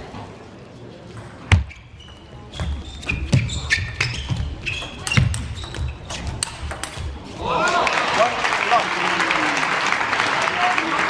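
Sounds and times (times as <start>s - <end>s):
shoe squeaks: 1.5s - 7.2s
ping pong ball clicking off bats: 4.8s - 7.1s.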